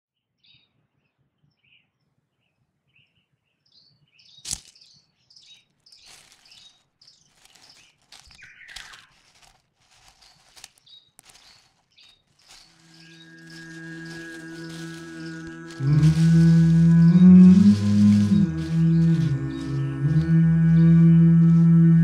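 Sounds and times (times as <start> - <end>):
small birds chirping: 0.4 - 21.8
leaves crackling: 4.4 - 4.8, 5.5 - 22.0
dry leaves rustling: 4.4 - 4.9, 5.5 - 22.0.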